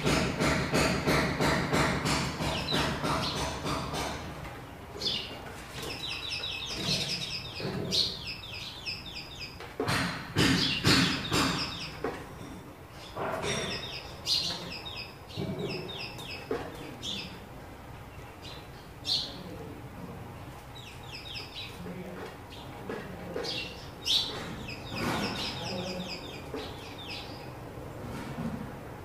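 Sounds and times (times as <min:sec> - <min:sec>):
sparrows chirping: 0:00.0 - 0:28.2.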